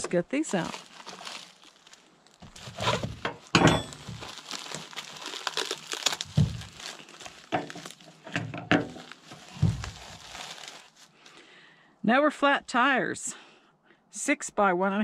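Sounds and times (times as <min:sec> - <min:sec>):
plastic bags and bubble wrap crinkling: 0:00.0 - 0:11.4
loud thump: 0:09.5 - 0:10.0.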